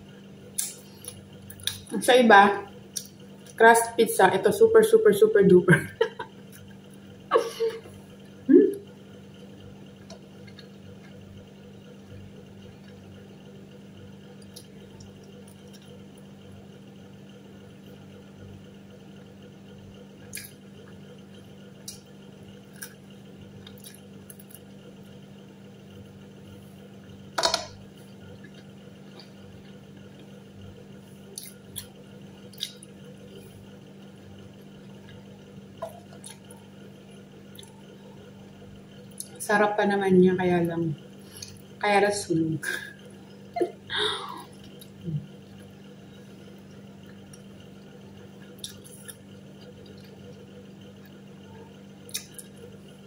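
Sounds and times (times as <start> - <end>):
steady low hum: 0.0 - 53.0
person chewing: 20.3 - 20.6, 22.6 - 24.8, 31.2 - 33.6, 34.6 - 36.8, 37.5 - 38.0, 44.1 - 45.8, 46.4 - 52.8.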